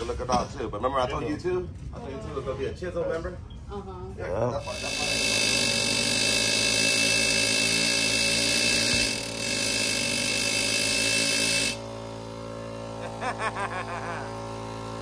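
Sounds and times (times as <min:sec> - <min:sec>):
air compressor humming: 0:04.6 - 0:15.0
air hammer buzzing: 0:04.6 - 0:15.0.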